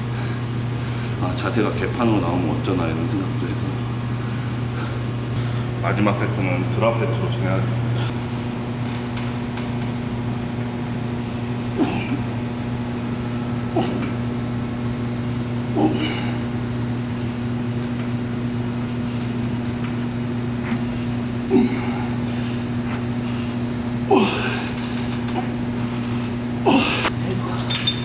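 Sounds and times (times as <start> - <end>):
steady low hum: 0.0 - 28.0
man grunting with effort: 11.8 - 12.3, 13.7 - 14.2, 15.7 - 16.5, 21.4 - 22.3, 24.0 - 25.6, 26.6 - 27.1.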